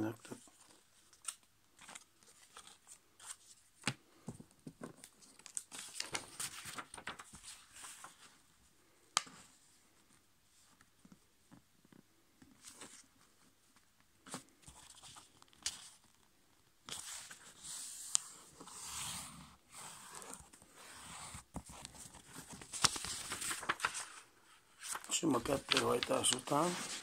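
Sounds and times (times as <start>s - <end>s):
paper rustling and sliding: 5.1s - 8.4s, 16.9s - 27.0s.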